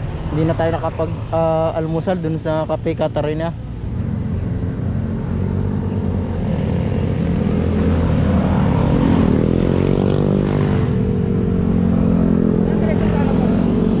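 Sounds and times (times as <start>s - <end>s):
motorcycle accelerating: 3.8s - 14.0s
motorcycles and scooters passing: 3.8s - 14.0s.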